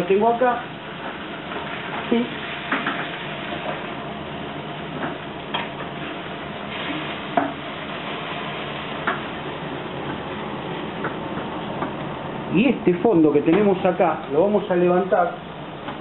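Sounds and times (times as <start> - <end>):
oil sizzling in a frying pan: 0.1 - 12.1.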